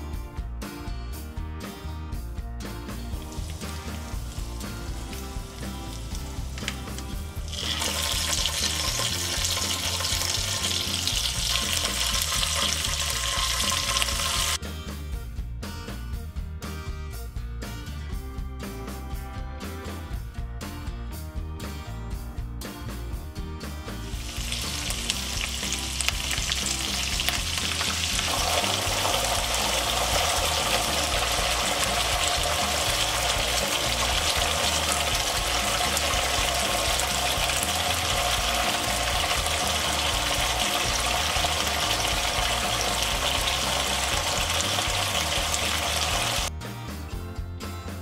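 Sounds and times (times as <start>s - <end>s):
oil sizzling in frying pan: 3.1s - 14.6s, 24.0s - 46.5s
tomato puree bubbling: 3.2s - 14.6s, 24.1s - 46.5s.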